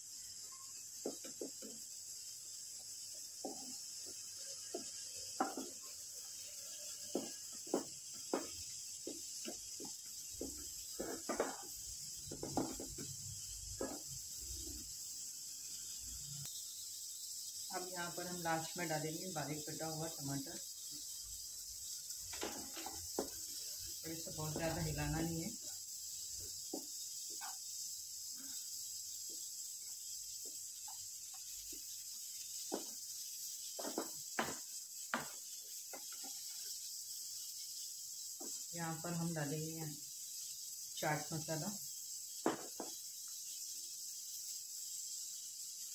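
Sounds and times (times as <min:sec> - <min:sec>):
faint hiss: 0:00.0 - 0:45.9
spatula scraping frying pan: 0:09.3 - 0:11.8
spatula scraping a frying pan: 0:09.4 - 0:11.8, 0:31.7 - 0:38.6.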